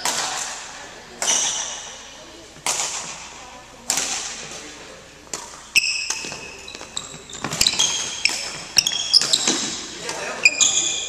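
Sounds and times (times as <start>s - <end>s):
racket hitting shuttlecock: 0.0s - 1.9s, 2.6s - 3.3s, 3.9s - 4.6s, 5.3s - 11.0s
shoes squeaking on court: 5.4s - 11.0s.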